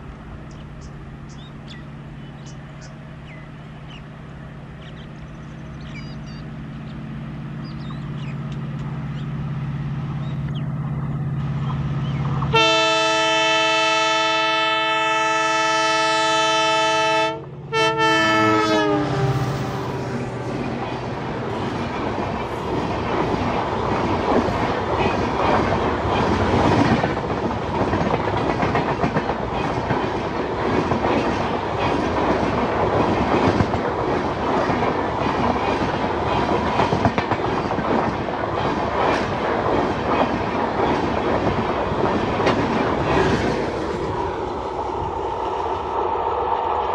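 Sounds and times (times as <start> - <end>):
diesel locomotive engine running: 0.0 - 46.9
multi-note train horn: 12.5 - 20.6
train wheels clattering on rails: 19.9 - 44.1.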